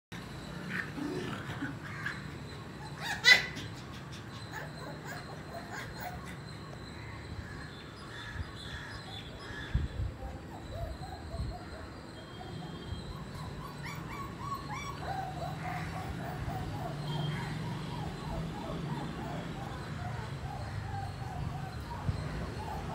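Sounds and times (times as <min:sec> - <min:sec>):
puppies yipping: 0:00.2 - 0:07.3, 0:10.2 - 0:22.9
puppy yelping sharply: 0:02.8 - 0:06.3.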